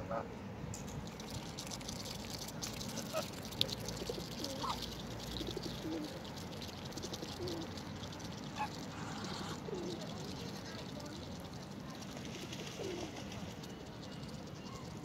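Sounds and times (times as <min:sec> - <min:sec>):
pigeons cooing: 0:03.9 - 0:06.3, 0:07.0 - 0:07.7, 0:08.6 - 0:10.1, 0:12.7 - 0:13.2.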